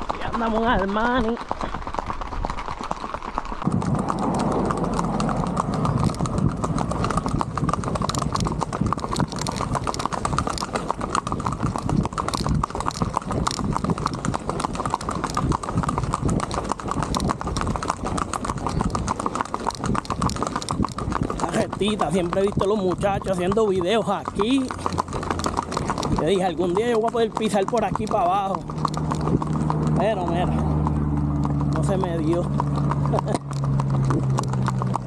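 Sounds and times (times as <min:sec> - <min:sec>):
horse hooves on asphalt: 0:00.0 - 0:35.0.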